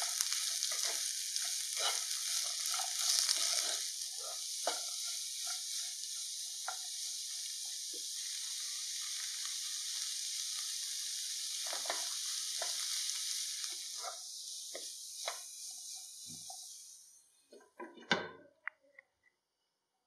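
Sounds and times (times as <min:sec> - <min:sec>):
spatula scraping and knocking pan: 0:00.0 - 0:08.1, 0:11.3 - 0:16.9
vegetables sizzling in oil: 0:00.0 - 0:17.6.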